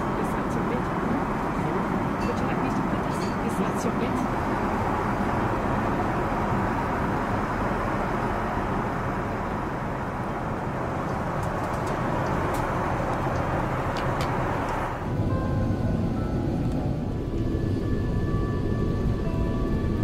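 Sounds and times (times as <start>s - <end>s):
aircraft cabin roar: 0.0s - 20.0s
music: 15.0s - 20.0s.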